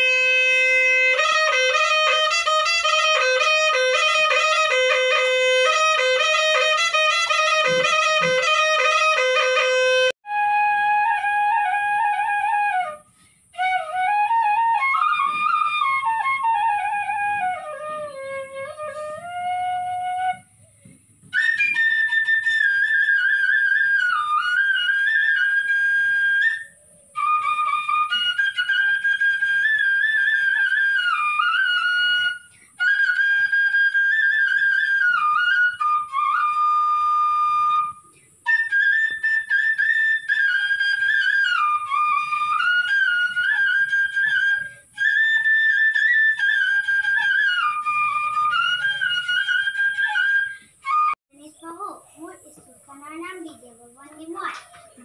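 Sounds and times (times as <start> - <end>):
bamboo flute melody: 0.0 - 51.5, 54.2 - 55.0.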